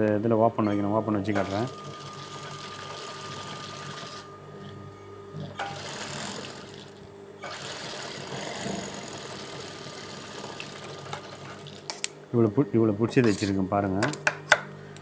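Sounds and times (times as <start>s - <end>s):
sewing machine stitching: 1.4s - 4.2s, 5.6s - 11.8s.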